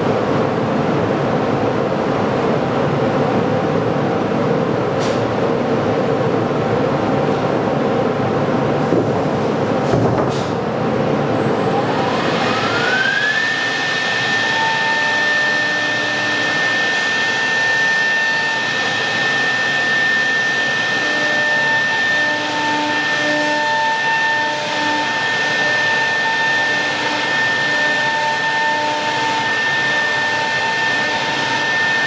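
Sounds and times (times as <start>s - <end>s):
machine and dust extraction rush: 11.6s - 32.0s
drilling spindle whining: 11.8s - 32.0s.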